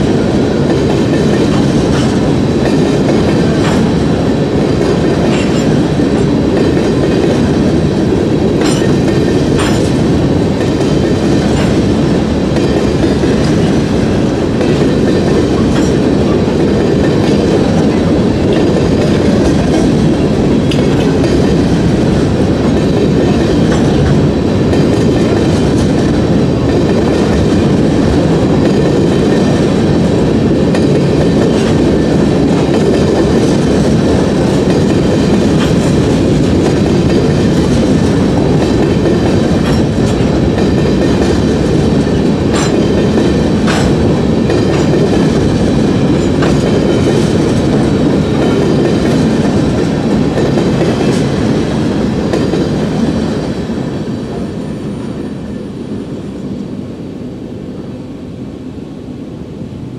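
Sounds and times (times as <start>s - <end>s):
freight train rumbling past: 0.0s - 59.9s.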